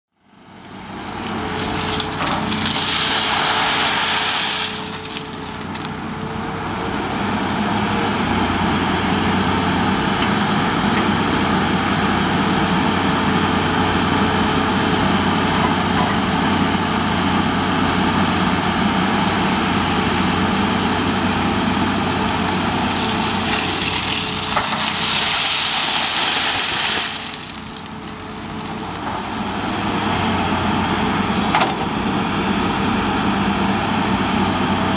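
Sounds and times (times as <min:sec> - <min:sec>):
excavator diesel engine running: 0:00.3 - 0:34.9
gravel rattling in bucket: 0:00.5 - 0:06.8, 0:21.7 - 0:30.0.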